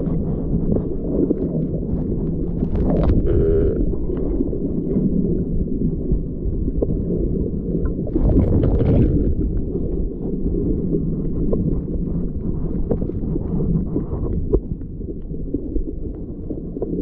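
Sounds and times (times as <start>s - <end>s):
muffled underwater rumble: 0.0s - 17.0s.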